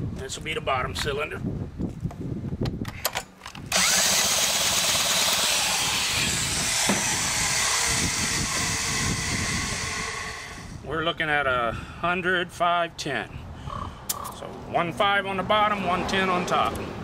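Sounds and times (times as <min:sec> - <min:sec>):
power drill running: 0:03.7 - 0:10.8.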